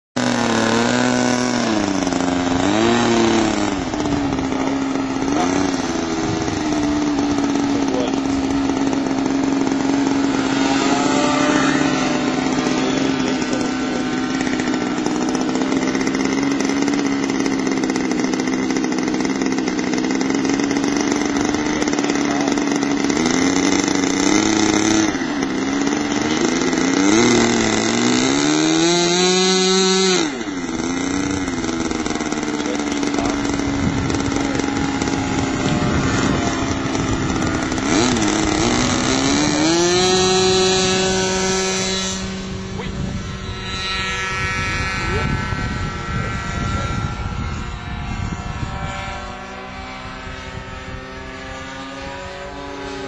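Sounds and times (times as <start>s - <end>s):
model aircraft engine at high revs: 0.2s - 53.0s.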